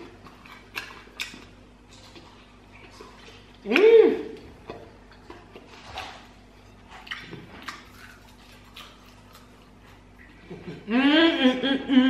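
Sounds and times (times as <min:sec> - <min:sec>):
chewing clicks: 0:00.0 - 0:03.6.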